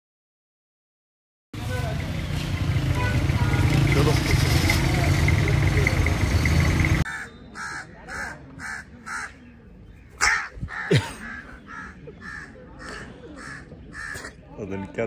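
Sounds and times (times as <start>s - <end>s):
vehicle noise: 1.6s - 10.2s
crow cawing: 7.1s - 9.4s, 10.2s - 14.3s.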